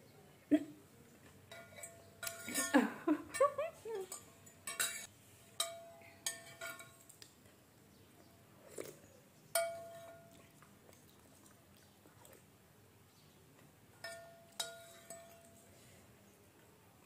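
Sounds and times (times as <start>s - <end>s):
soft eating sound: 0.2s - 17.0s
metal cutlery clinking on glass bowl: 1.3s - 7.2s, 9.6s - 10.5s, 14.0s - 15.8s.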